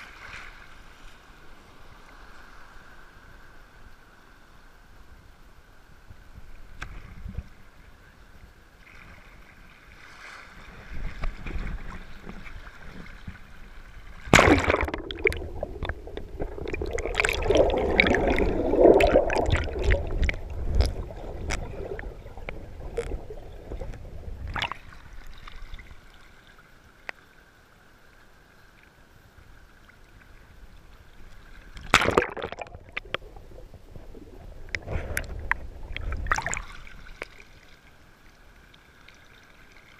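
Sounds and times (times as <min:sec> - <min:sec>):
surf sloshing and splashing: 0:00.0 - 0:03.8, 0:08.7 - 0:26.8, 0:30.2 - 0:39.9
underwater churning and bubbling: 0:10.7 - 0:26.3, 0:30.2 - 0:37.9
loud water splash: 0:14.2 - 0:22.1, 0:31.8 - 0:33.2.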